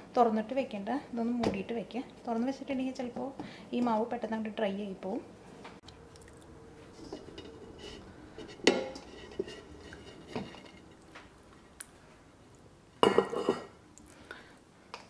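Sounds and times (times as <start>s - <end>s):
plate clinking on metal bowl: 7.0s - 11.0s.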